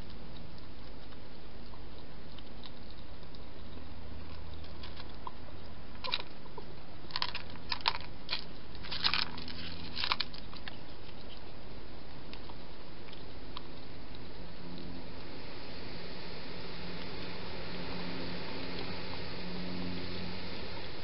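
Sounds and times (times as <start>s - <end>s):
hedgehog crunching food: 0.0s - 15.3s.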